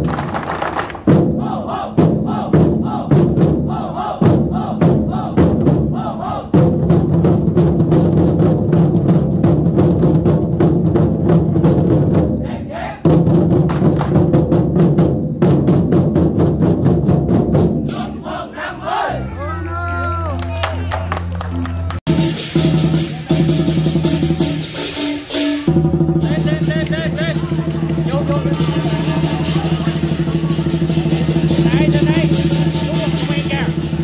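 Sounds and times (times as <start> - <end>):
drums playing fast rolls: 0.0 - 18.0, 19.8 - 34.0
group shouts: 12.4 - 13.0, 18.0 - 20.9.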